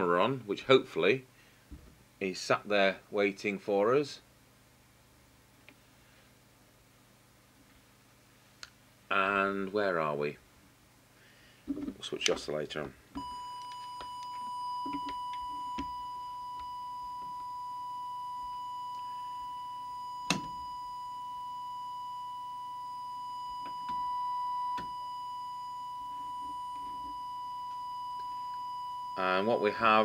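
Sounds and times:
steady test tone: 0:13.2 - 0:30.0.

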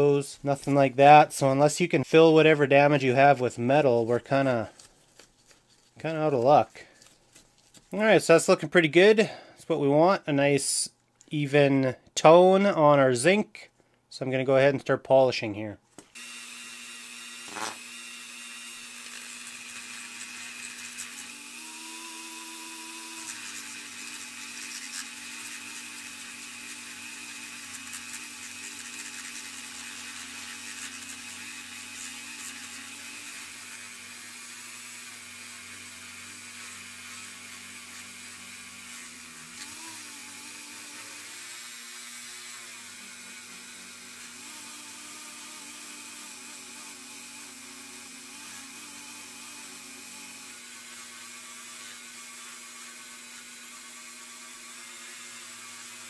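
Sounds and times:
rotary tool motor whine: 0:16.1 - 0:56.0.

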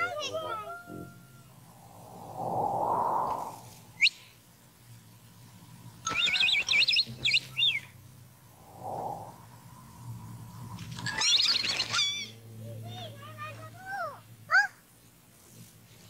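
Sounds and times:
soft whoosh: 0:01.6 - 0:04.0, 0:08.5 - 0:10.2.

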